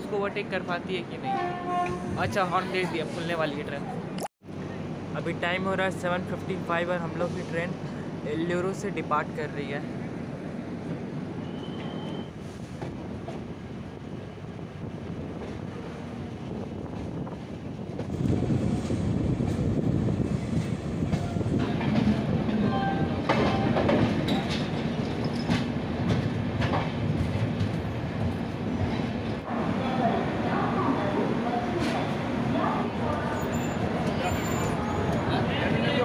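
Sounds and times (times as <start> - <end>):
train rumbling: 0.0 - 36.0
wheels clattering over rail joints: 20.6 - 29.4.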